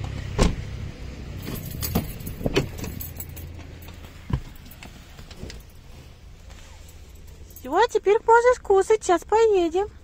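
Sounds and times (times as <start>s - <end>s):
keys jangling: 1.4s - 4.8s, 6.8s - 7.9s.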